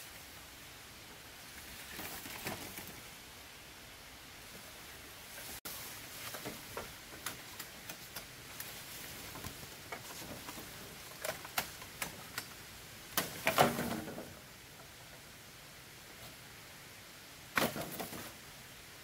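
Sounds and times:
faint steady hiss: 0.0s - 19.0s.

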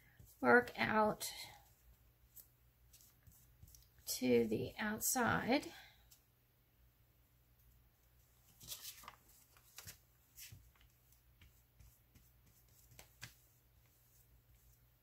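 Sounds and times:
faint paper rustles: 8.4s - 14.8s.

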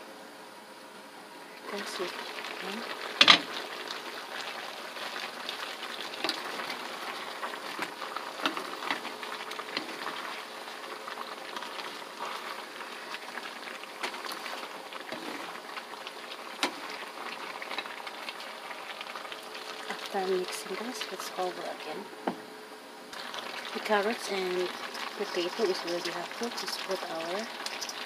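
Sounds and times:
food sizzling in a pan: 1.6s - 22.0s, 23.1s - 28.0s
wooden spatulas stirring: 1.7s - 21.1s, 23.2s - 28.0s.

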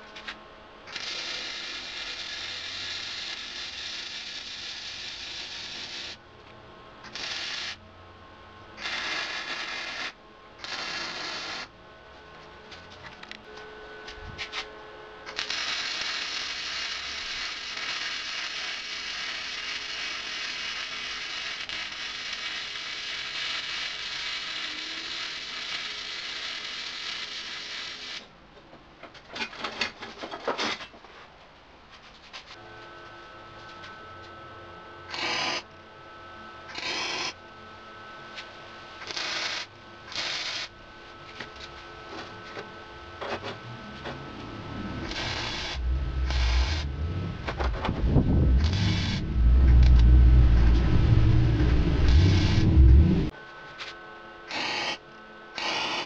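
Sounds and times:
welder arc crackling: 15.3s - 26.6s, 44.4s - 53.3s.

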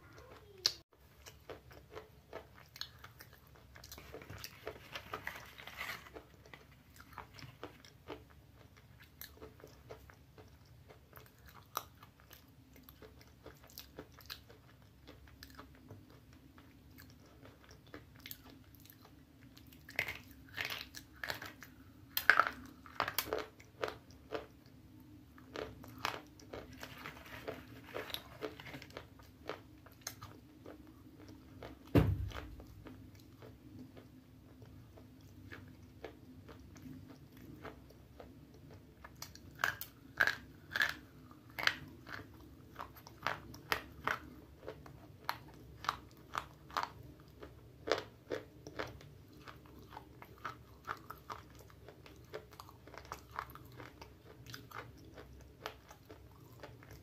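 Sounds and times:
biting and chewing crunches: 1.2s - 16.3s, 16.9s - 24.6s, 25.4s - 57.0s.

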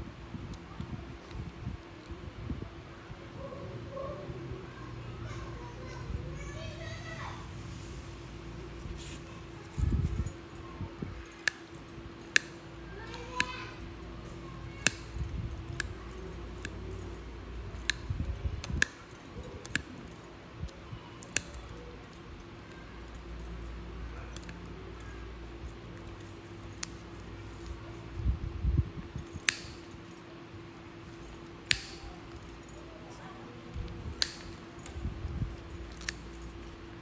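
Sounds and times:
steady faint hum: 0.0s - 37.0s
nail nippers snipping toenail: 8.8s - 10.4s, 11.2s - 20.3s, 21.2s - 28.0s, 29.2s - 30.2s, 31.1s - 32.8s, 33.7s - 37.0s.

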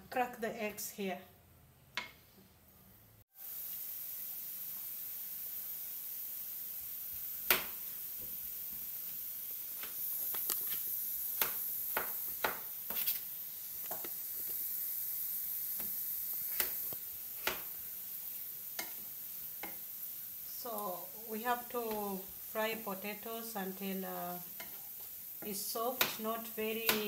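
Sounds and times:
onions sizzling in a pan: 3.3s - 27.0s
knife chopping on plastic board: 11.4s - 12.6s.

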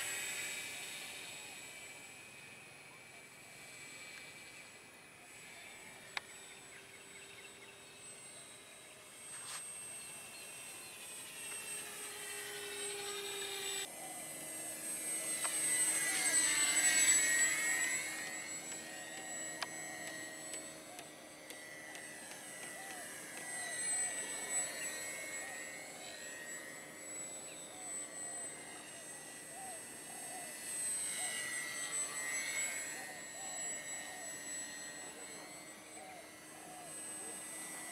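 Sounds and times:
model plane motor whining: 0.0s - 37.9s.

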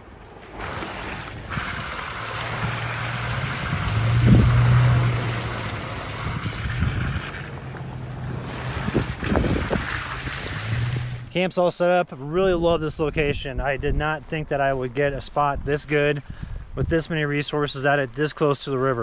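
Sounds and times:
pickup engine hum: 1.4s - 11.3s.

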